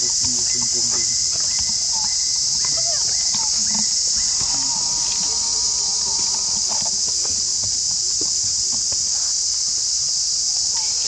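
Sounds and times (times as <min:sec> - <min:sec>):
insect chorus drone: 0:00.0 - 0:11.0.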